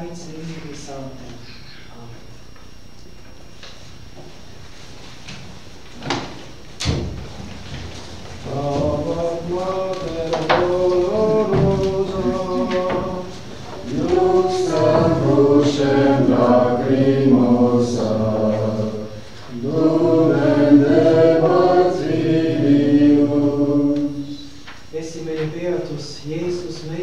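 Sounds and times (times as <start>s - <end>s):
congregation singing a hymn: 6.1s - 25.2s.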